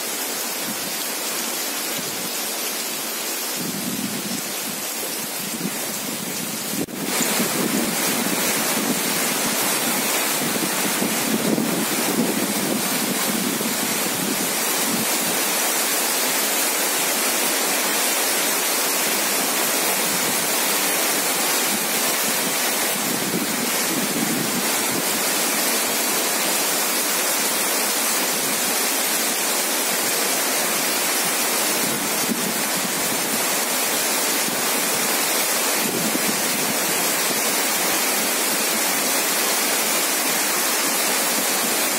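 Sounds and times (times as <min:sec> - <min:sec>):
heavy rain falling: 0:00.0 - 0:41.9.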